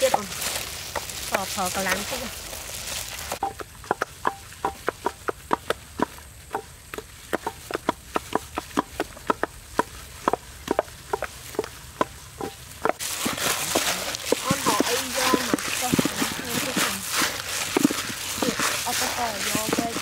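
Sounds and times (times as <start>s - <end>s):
wooden pestles pounding in mortars: 0.0s - 2.2s, 3.3s - 20.0s.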